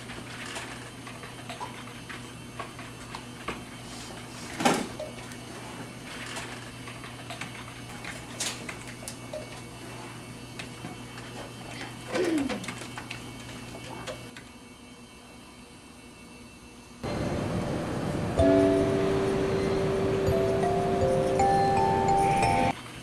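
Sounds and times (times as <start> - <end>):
steady low hum: 14.6 - 22.7.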